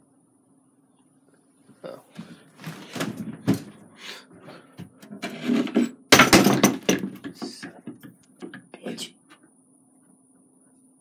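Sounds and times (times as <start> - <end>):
rustling of handled things: 1.7 - 9.4
objects knocking and clattering: 2.2 - 3.8, 4.4 - 8.8.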